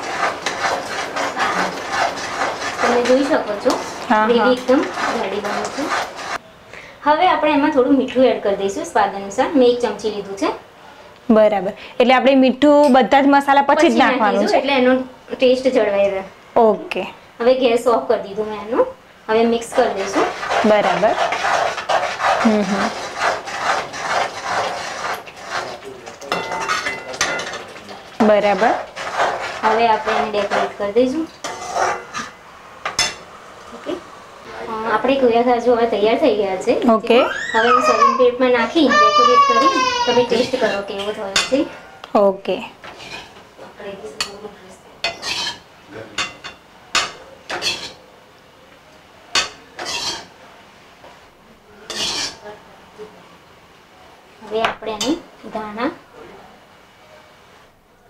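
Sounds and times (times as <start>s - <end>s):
wooden spatula scraping metal pan: 0.0s - 6.4s, 19.4s - 33.2s, 37.7s - 41.8s, 42.8s - 43.5s, 45.0s - 48.0s, 49.4s - 50.4s, 51.9s - 52.4s.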